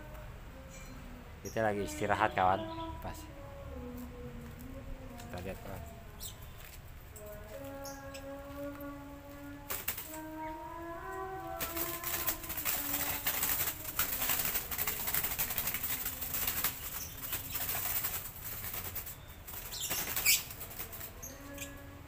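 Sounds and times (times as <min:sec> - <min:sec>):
bird wings fluttering: 0:09.6 - 0:10.4, 0:11.4 - 0:21.7.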